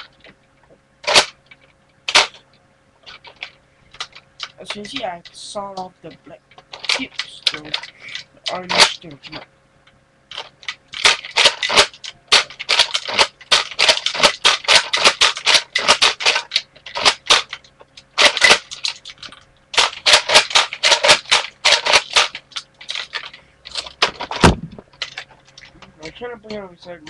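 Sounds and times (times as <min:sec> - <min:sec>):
toy blaster plastic clicking: 0:06.8 - 0:09.4, 0:10.3 - 0:24.0.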